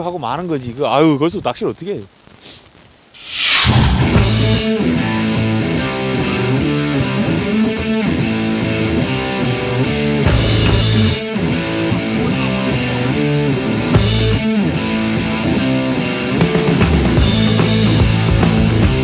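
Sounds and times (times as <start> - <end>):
background music with guitar: 4.1 - 19.0.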